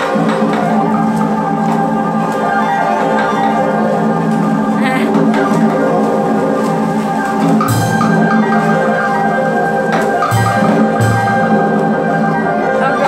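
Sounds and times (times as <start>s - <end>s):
sharp percussion strikes: 7.4s - 13.0s.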